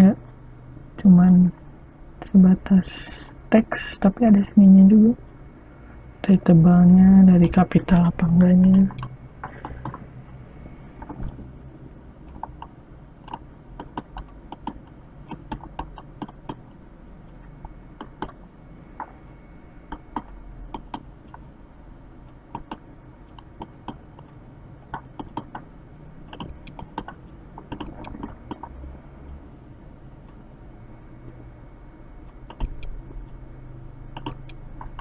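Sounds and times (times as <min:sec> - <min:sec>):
low background hum: 0:00.0 - 0:35.0
keyboard and mouse clicks: 0:08.6 - 0:10.0, 0:11.0 - 0:11.4, 0:12.3 - 0:16.6, 0:19.9 - 0:21.4, 0:22.5 - 0:24.3, 0:24.9 - 0:25.6, 0:26.3 - 0:28.8, 0:32.5 - 0:33.0, 0:34.2 - 0:35.0.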